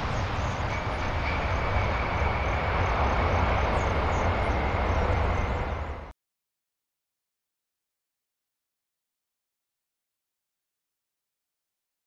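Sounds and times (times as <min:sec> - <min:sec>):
high engine whine: 0:00.0 - 0:06.1
jet engines rumbling: 0:00.0 - 0:06.1.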